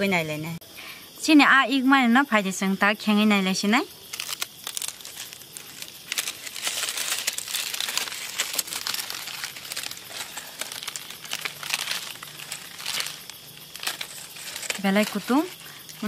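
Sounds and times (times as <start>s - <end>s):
dry leaves crackling and tearing: 4.0s - 16.0s.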